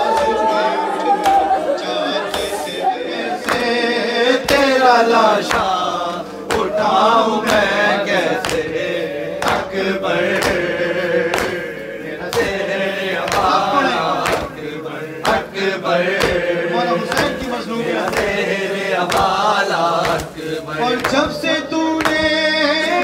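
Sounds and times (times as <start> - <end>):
men chanting in unison: 0.0 - 23.0
hand slaps on chest: 8.4 - 8.7, 11.3 - 11.6, 12.3 - 12.6, 13.3 - 13.6, 14.2 - 14.5, 16.2 - 16.4, 18.1 - 18.4, 19.1 - 19.4, 20.0 - 20.4.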